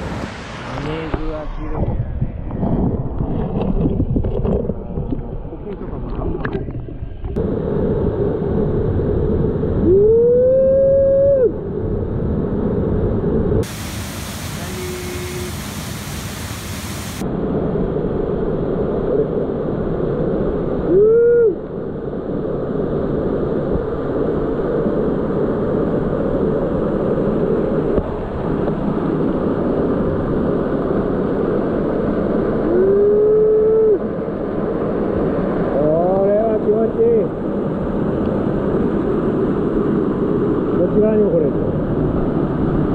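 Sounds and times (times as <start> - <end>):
muffled water heard underwater: 1.6 - 15.9
waterfall roaring into pool: 13.6 - 17.3
drawn-out voice rising: 14.5 - 15.7.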